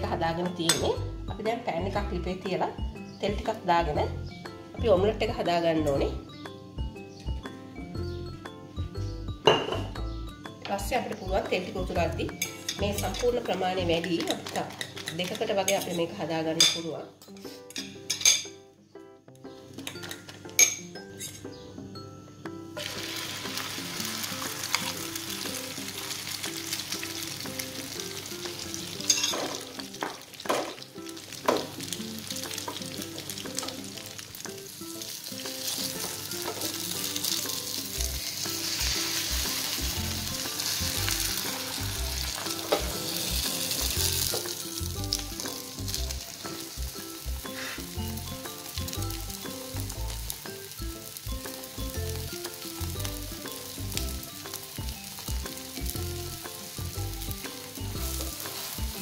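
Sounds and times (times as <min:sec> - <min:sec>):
egg batter sizzling in a frying pan: 0:22.8 - 0:59.0.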